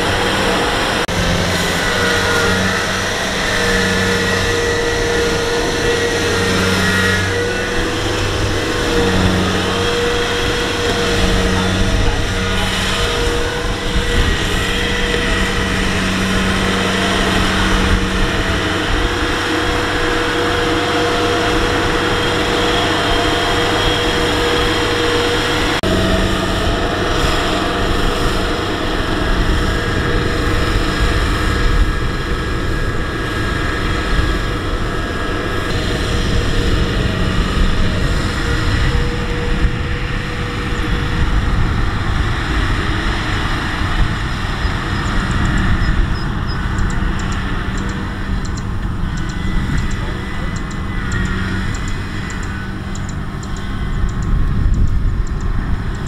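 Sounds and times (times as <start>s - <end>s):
combine harvester diesel engine: 0.0s - 56.0s
constant high whine: 0.0s - 56.0s
low pulsing hum: 0.0s - 56.0s.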